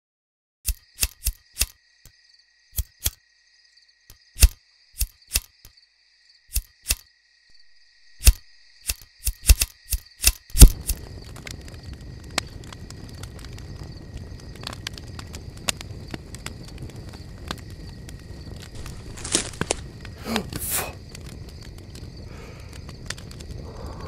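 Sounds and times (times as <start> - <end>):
flint striking steel clicks: 0.7 - 3.2, 4.4 - 5.8, 6.5 - 7.1, 8.1 - 11.1
fire crackling: 6.5 - 24.0.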